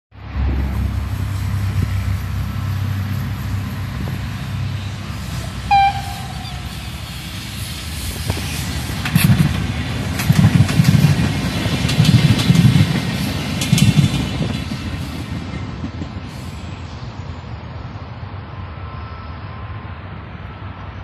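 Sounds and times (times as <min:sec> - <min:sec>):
train wheels clattering over rail joints: 0:06.0 - 0:16.8.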